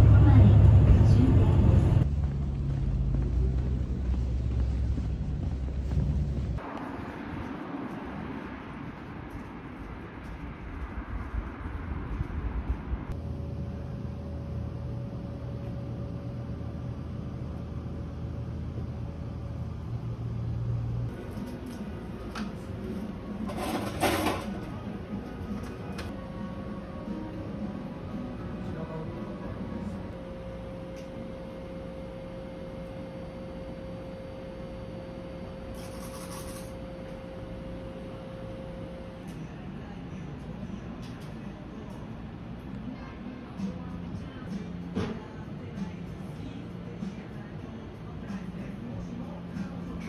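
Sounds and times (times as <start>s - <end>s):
low rumble: 0.0s - 21.1s
faint constant hum: 0.0s - 50.0s
low street rumble: 0.0s - 50.0s.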